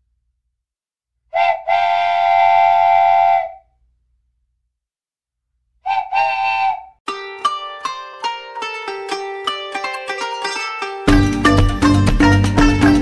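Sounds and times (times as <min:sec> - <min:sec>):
steam locomotive whistle: 0:01.3 - 0:03.6, 0:05.9 - 0:06.9.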